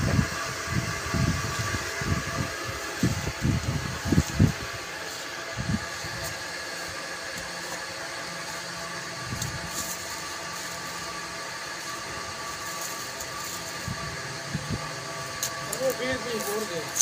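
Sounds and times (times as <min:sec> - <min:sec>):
mechanical hum with fixed tones: 0:00.0 - 0:17.0.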